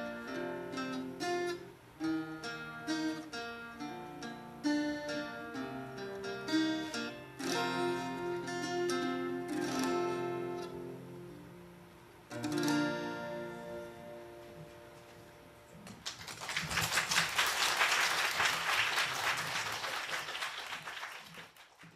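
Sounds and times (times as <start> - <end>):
acoustic guitars strumming chords: 0.0 - 15.8
audience applause: 16.0 - 21.9.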